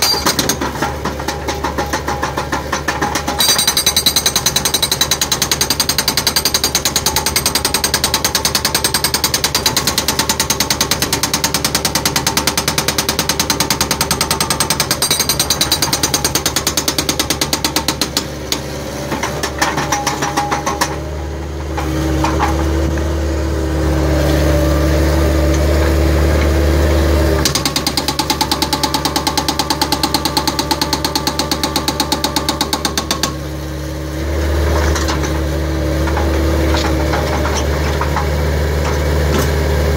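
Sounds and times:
hydraulic breaker hammering concrete: 0.0s - 23.4s, 25.2s - 39.9s
loader engine running: 18.0s - 39.9s.

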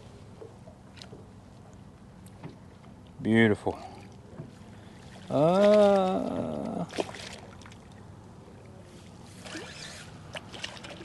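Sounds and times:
fish splashing at water surface: 5.2s - 7.8s
man exclaiming: 5.3s - 6.9s.

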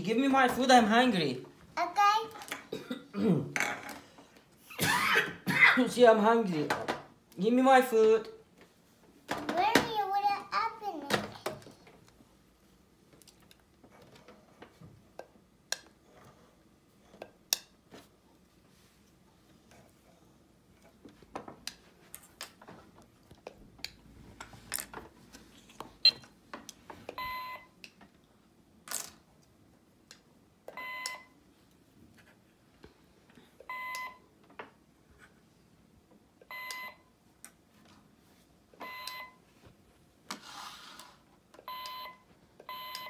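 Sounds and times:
toy cash register beeps: 27.2s - 27.7s, 30.8s - 31.3s, 33.7s - 34.2s, 38.8s - 39.4s, 41.7s - 43.0s.

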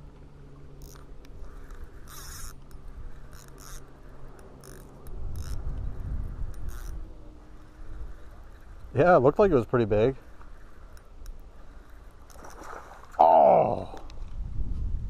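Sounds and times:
fishing reel whirring and clicking: 0.7s - 8.9s, 10.3s - 12.7s.

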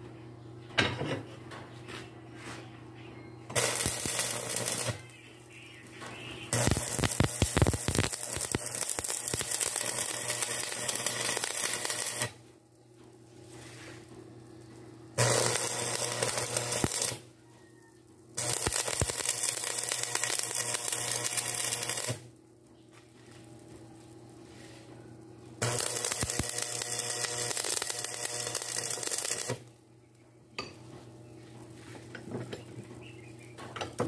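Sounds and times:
welding arc crackling: 3.5s - 29.8s.

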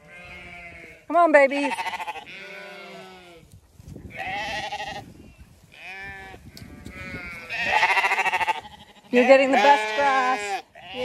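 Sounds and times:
lambs bleating: 0.0s - 3.5s, 4.1s - 5.1s, 5.7s - 11.0s.

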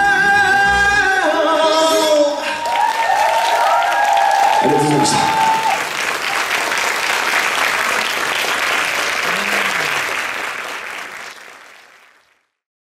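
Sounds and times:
audience applauding: 2.4s - 12.5s.

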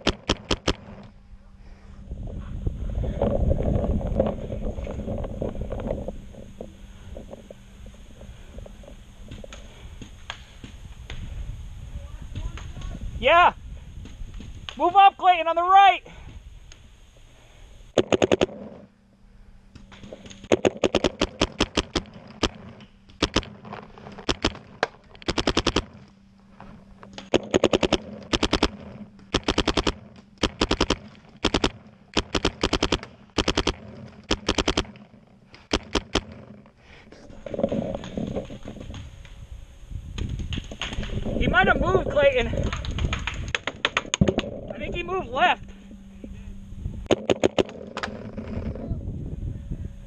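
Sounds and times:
paintball marker firing rapidly: 0.0s - 0.9s, 18.0s - 18.6s, 20.5s - 23.6s, 24.2s - 26.0s, 27.2s - 35.0s, 35.6s - 36.4s, 47.1s - 48.2s.

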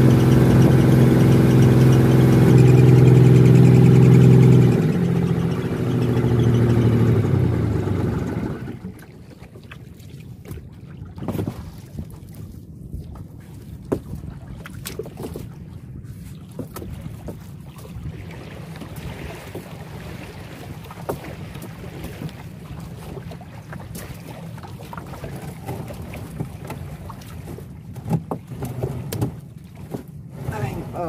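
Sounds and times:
outboard motor running: 0.0s - 31.0s
water splashing against hull: 0.0s - 31.0s.

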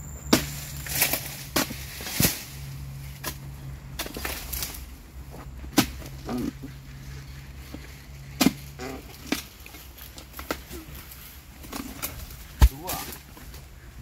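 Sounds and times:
steady low hum: 0.0s - 14.0s
chisel striking palm fronds: 0.3s - 2.6s, 5.7s - 6.3s, 8.3s - 9.5s, 11.6s - 13.3s.

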